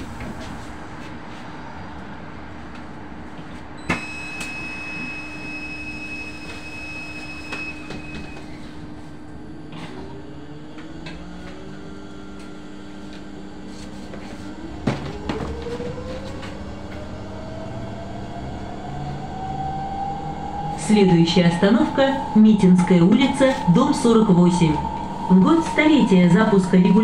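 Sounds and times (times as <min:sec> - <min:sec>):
bus drive hum: 0:00.0 - 0:27.0
electric motor whine rising: 0:09.3 - 0:13.7.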